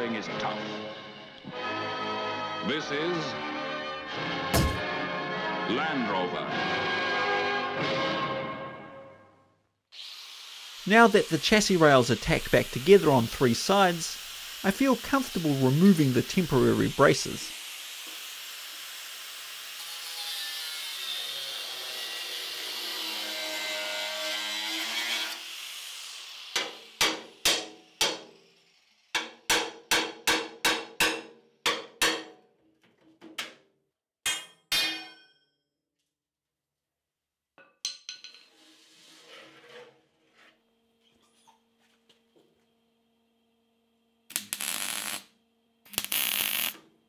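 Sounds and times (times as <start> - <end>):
hammer striking steel: 4.6 - 4.8, 26.6 - 28.4, 29.1 - 32.5, 34.2 - 35.5
angle grinder cutting steel: 10.0 - 29.4.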